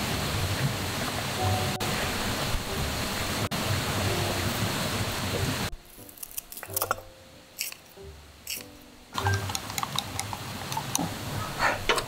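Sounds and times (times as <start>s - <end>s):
mountain stream rushing: 0.0s - 11.9s
scissors cutting green onion: 5.9s - 11.1s.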